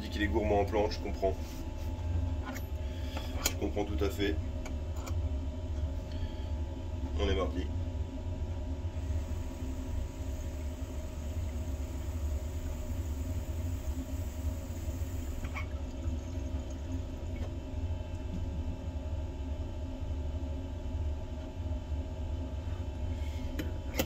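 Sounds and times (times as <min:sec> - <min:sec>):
air hissing through water pipe: 0:08.9 - 0:17.5.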